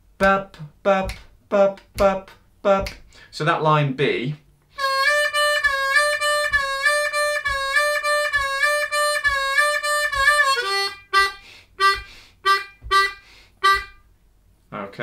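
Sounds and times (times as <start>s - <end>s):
harmonica playing solo: 4.7s - 14.1s.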